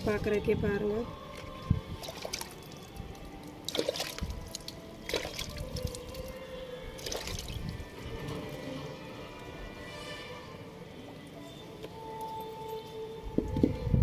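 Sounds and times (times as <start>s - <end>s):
water dripping onto tiled floor: 2.1s - 6.3s.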